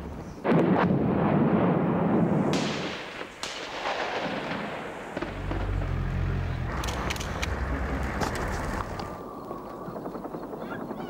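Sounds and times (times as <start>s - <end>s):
gunshots cracking: 0.4s - 9.2s
low rumble: 5.1s - 9.3s.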